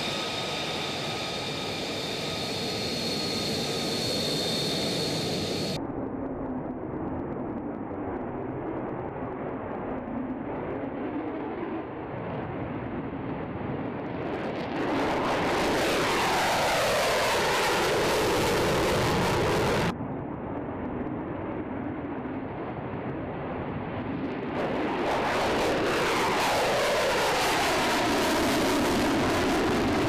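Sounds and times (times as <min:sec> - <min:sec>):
fighter jet roaring in afterburner: 0:00.0 - 0:05.8, 0:14.3 - 0:19.9, 0:24.3 - 0:30.0
low jet rumble: 0:00.0 - 0:30.0.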